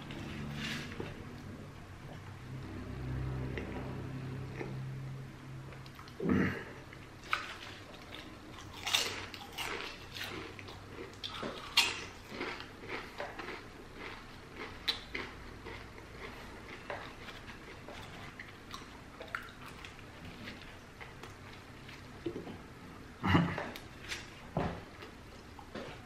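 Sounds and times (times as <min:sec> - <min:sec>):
chewing crunchy food: 0:06.9 - 0:22.7, 0:23.6 - 0:26.0.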